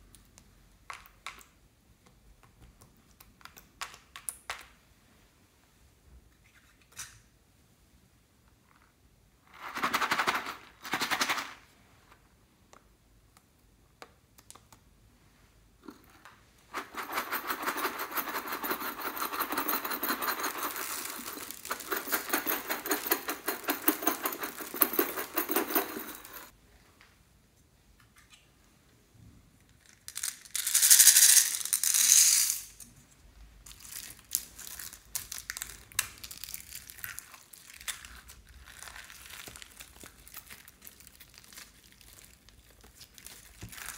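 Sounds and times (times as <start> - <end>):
small objects rattling against glass: 16.7 - 26.5, 30.1 - 32.8.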